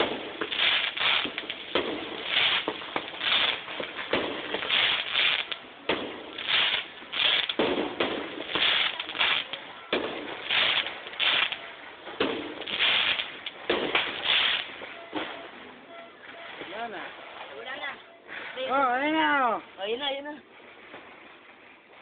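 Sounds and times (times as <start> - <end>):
fireworks bangs: 0.0 - 17.7
fireworks crackling and popping: 0.0 - 22.0.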